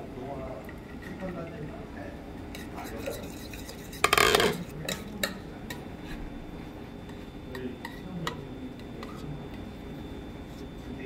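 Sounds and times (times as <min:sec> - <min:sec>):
dishes clinking on metal counter: 0:02.6 - 0:05.9, 0:07.1 - 0:09.7.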